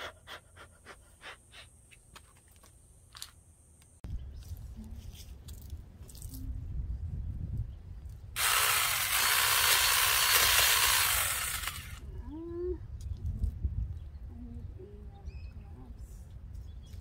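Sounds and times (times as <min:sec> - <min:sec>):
chainsaw cutting branch: 0:08.4 - 0:12.0.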